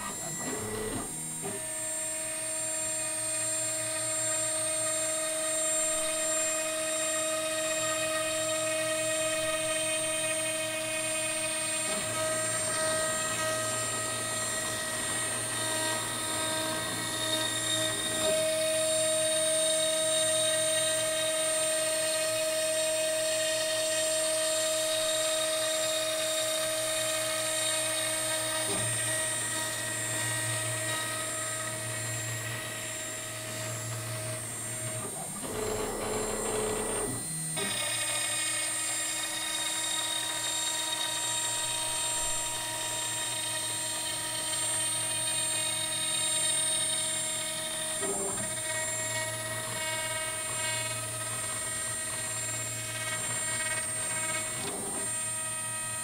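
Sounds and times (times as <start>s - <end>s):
router bit cutting wood: 0.0s - 56.0s
router spindle whine: 0.0s - 56.0s.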